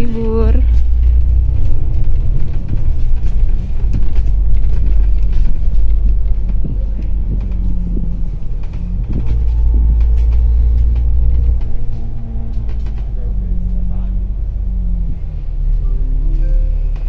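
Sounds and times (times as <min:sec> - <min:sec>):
bus diesel engine rumbling: 0:00.0 - 0:17.0
engine whine falling in pitch: 0:00.0 - 0:17.0.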